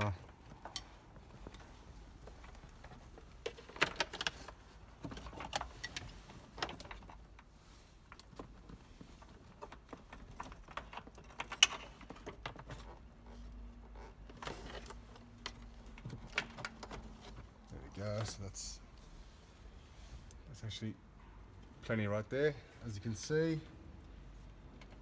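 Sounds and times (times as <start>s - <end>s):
plastic clicks and rattles: 3.4s - 7.2s, 9.4s - 12.9s.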